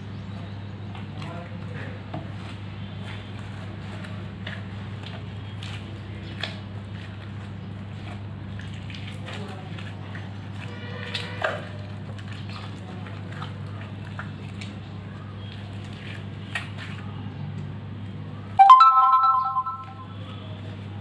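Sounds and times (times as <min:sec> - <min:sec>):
electronic chime: 0:18.6 - 0:20.2.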